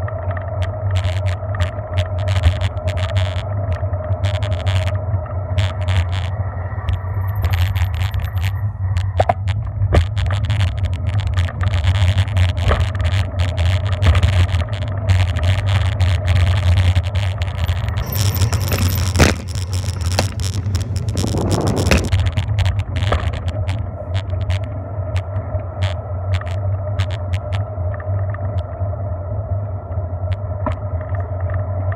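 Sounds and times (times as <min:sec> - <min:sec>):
wind rumbling on microphone: 0:00.0 - 0:31.9
bike clicks and knocks: 0:05.6 - 0:24.6.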